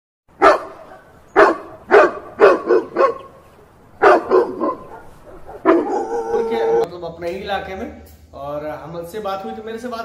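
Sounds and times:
dog barking: 0:00.4 - 0:03.4, 0:04.0 - 0:06.9.

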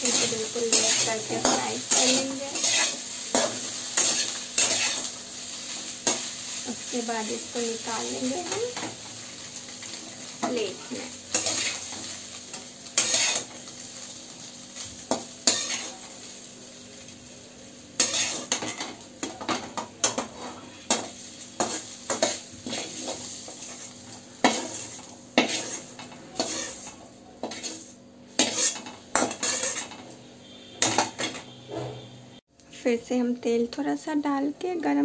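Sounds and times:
metal spatula scraping pan: 0:00.0 - 0:05.1, 0:11.3 - 0:12.1, 0:13.0 - 0:13.6, 0:15.1 - 0:16.0, 0:18.0 - 0:19.0, 0:20.0 - 0:32.1
hot oil sizzling: 0:00.0 - 0:32.5.

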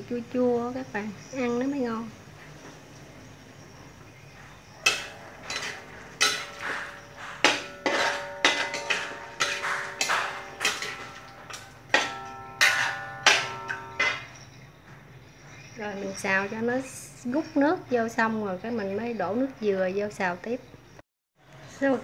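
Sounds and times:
metal spatula scraping a wok: 0:04.8 - 0:14.4.

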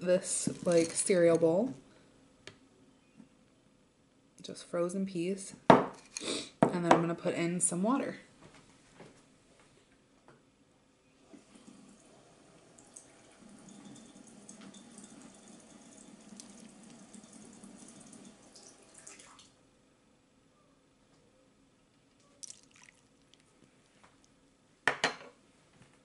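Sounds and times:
tap running water: 0:11.3 - 0:19.5.

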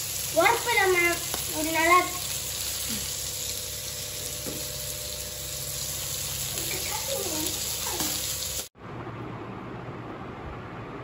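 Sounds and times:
fish sizzling in oil: 0:00.0 - 0:08.7.

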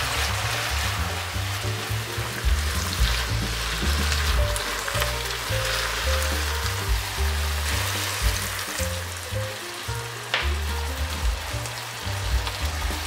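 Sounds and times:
water poured into pan: 0:00.0 - 0:09.4
background music with bass: 0:00.0 - 0:13.0
food sizzling in a frying pan: 0:00.0 - 0:13.0.

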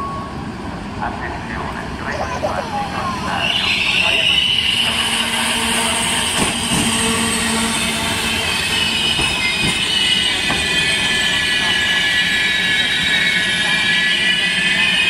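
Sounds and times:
train wheels squealing: 0:03.1 - 0:15.0.

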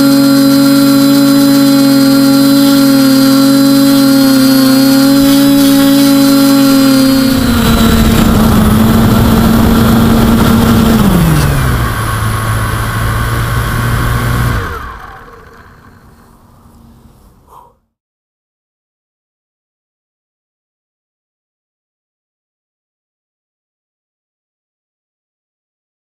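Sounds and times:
drone motors humming: 0:00.0 - 0:17.6.

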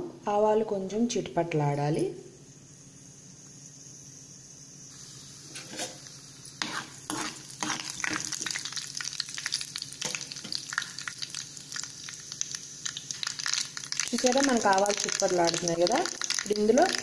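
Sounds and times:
seeds sizzling and popping in oil: 0:03.3 - 0:17.0
steel spoon scraping pan: 0:05.5 - 0:08.6.

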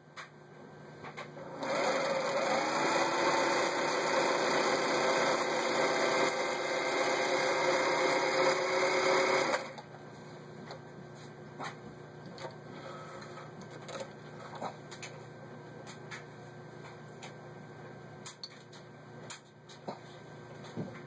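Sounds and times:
sewing machine running: 0:01.4 - 0:09.8.

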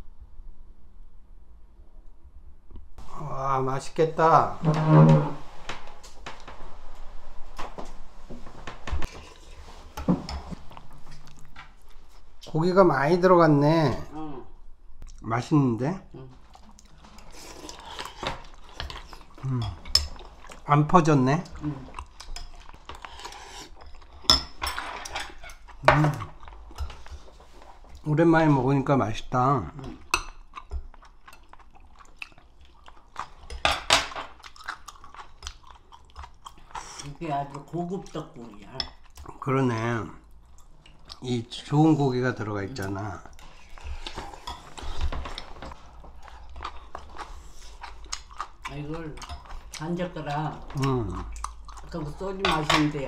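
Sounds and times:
chewing: 0:10.4 - 0:12.6, 0:16.2 - 0:20.7, 0:21.4 - 0:28.1, 0:29.7 - 0:39.4, 0:40.2 - 0:41.6, 0:42.7 - 0:52.9.

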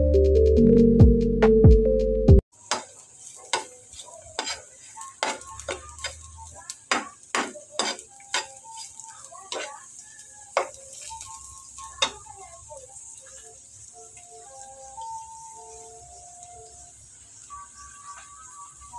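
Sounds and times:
food sizzling in oil: 0:02.5 - 0:18.9
spatula clicking against pan: 0:03.5 - 0:09.8.

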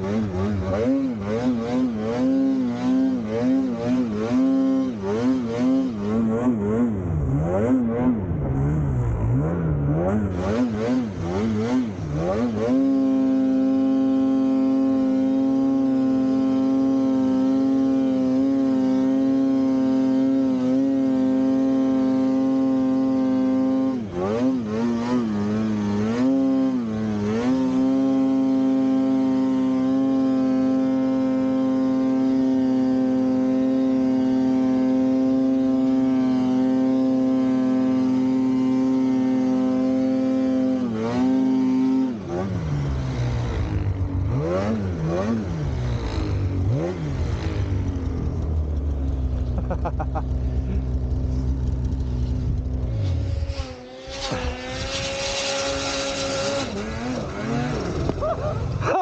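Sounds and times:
snowmobile engine revving: 0:00.0 - 0:59.0.

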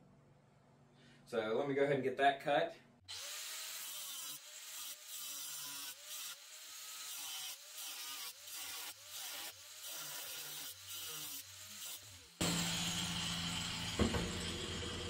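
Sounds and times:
angle grinder cutting steel: 0:03.1 - 0:15.0.

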